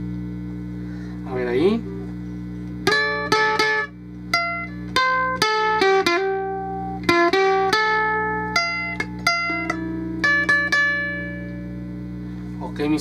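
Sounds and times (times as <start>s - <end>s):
low amp hum: 0.0s - 13.0s
ukulele picked notes: 2.8s - 11.8s.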